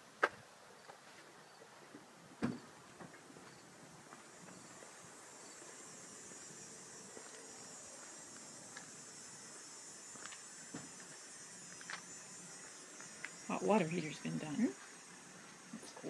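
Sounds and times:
insects trilling: 0:02.4 - 0:16.0
footsteps on pavement: 0:02.9 - 0:05.8, 0:07.1 - 0:08.9, 0:10.1 - 0:13.4.

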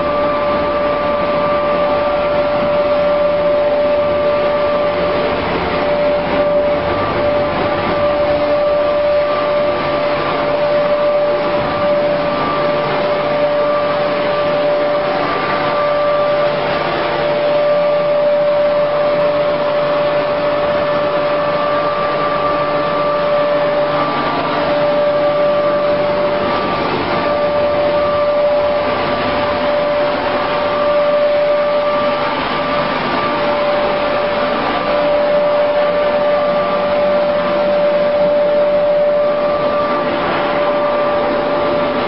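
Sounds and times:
constant machine whine: 0:00.0 - 0:42.0
dryer plant machinery running: 0:00.0 - 0:42.0.

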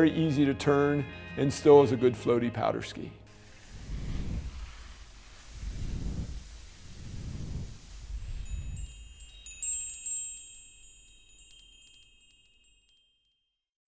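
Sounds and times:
low whooshing swells: 0:03.3 - 0:09.6
high tinkling chime tones: 0:05.6 - 0:13.7.

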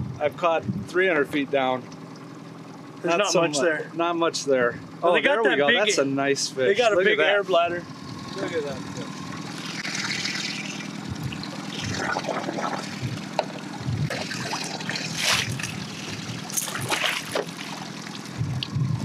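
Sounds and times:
low boat motor hum: 0:00.0 - 0:19.0
water dripping and trickling: 0:09.1 - 0:18.8
fish splashing at water surface: 0:09.3 - 0:18.4.

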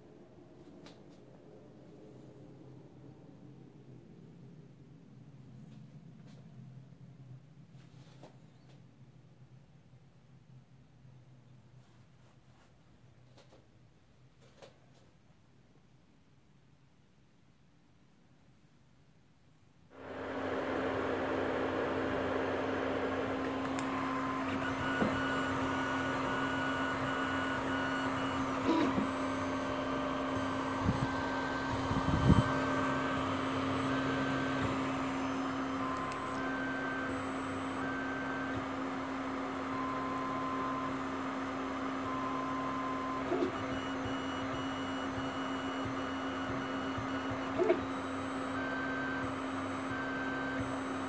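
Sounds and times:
cooling fan humming: 0:20.0 - 0:42.9
stepper motors whining: 0:21.8 - 0:51.0.

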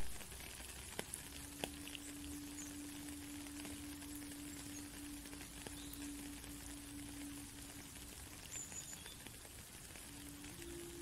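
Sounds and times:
rain falling on a puddle: 0:00.0 - 0:11.0
low flute note: 0:10.0 - 0:11.0.

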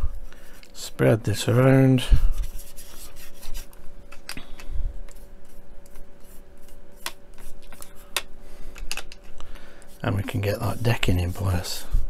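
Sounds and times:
paintbrush scratching: 0:02.3 - 0:03.7, 0:09.9 - 0:12.0.

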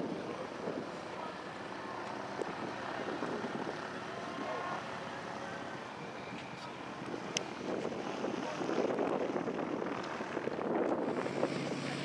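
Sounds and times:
faint voices: 0:00.0 - 0:10.4
distant aircraft engines droning: 0:00.0 - 0:12.0
wind on microphone: 0:02.3 - 0:04.6, 0:05.7 - 0:12.0.

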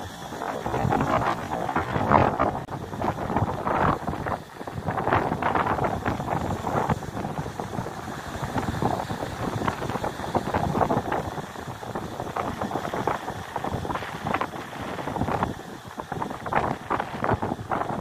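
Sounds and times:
waves breaking on rocks: 0:00.0 - 0:18.0
wind buffeting microphone: 0:00.0 - 0:18.0.

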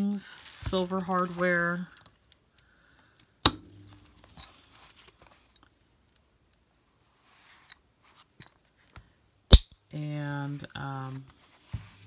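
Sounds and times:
rustling of leather planner: 0:00.0 - 0:02.3, 0:03.9 - 0:05.6, 0:11.0 - 0:12.0.

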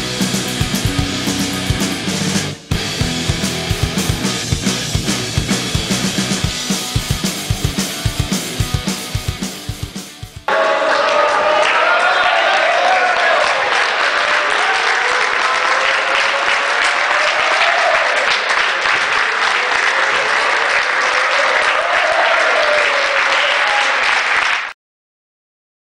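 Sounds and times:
crowd applauding: 0:10.5 - 0:24.8
crowd cheering: 0:10.5 - 0:24.8.

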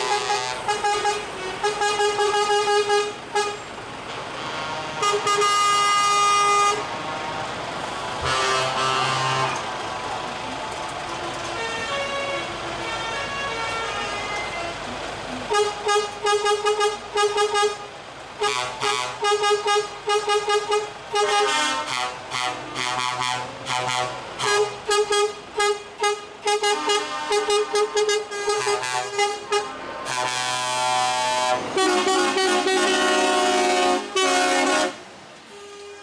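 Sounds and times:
multi-tone air horn blast: 0:00.0 - 0:03.6, 0:04.3 - 0:07.5, 0:08.2 - 0:09.7, 0:11.6 - 0:14.9, 0:15.5 - 0:36.0
truck air horn toots: 0:00.0 - 0:09.7, 0:11.4 - 0:14.9, 0:15.5 - 0:36.0.

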